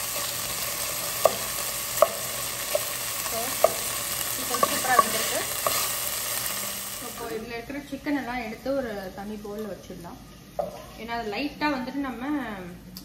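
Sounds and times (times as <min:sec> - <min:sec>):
chicken sizzling in oil: 0:00.0 - 0:07.5
wooden spoon knocking on pot: 0:01.1 - 0:05.8.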